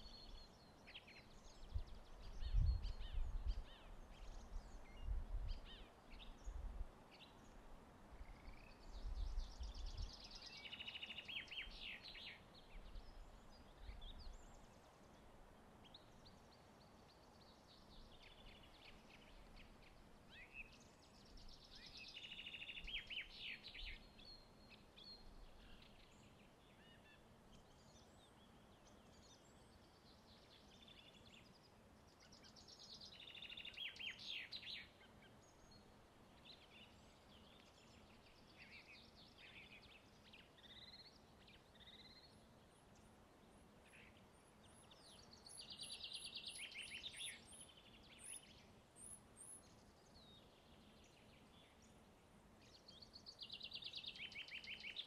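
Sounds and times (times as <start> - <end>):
quiet forest ambience: 0.0 - 55.0
songbird trilling: 45.0 - 48.4.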